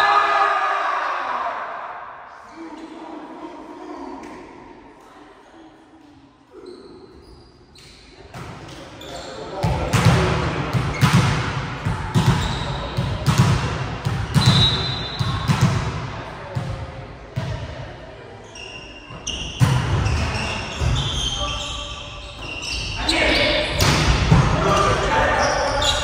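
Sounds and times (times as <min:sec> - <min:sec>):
sneakers squeaking on court: 0:06.6 - 0:11.4, 0:12.1 - 0:13.5, 0:18.4 - 0:26.0
volleyball bouncing on floor: 0:09.6 - 0:16.0.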